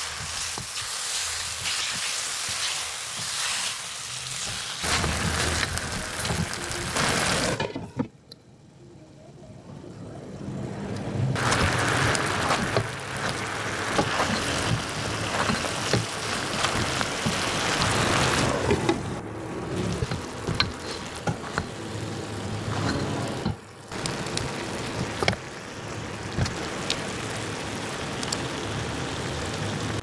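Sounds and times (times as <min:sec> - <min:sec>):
chicken sizzling in a wok: 0:00.0 - 0:07.6, 0:11.4 - 0:18.7, 0:19.9 - 0:30.0
spatula scraping a pan: 0:19.9 - 0:21.8.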